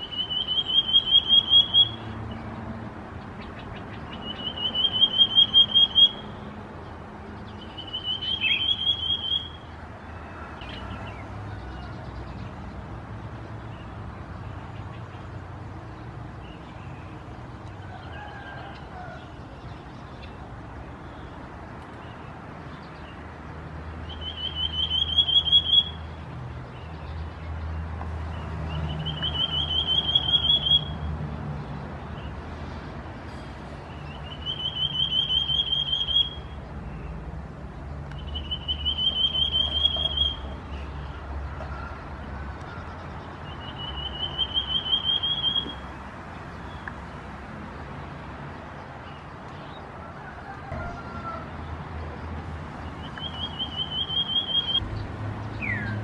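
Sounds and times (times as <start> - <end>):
bird trilled whistle call: 0.0 - 2.0, 4.2 - 6.4, 7.6 - 9.6, 24.1 - 26.0, 28.9 - 31.0, 34.2 - 36.5, 38.2 - 40.5, 43.6 - 45.8, 53.0 - 54.8.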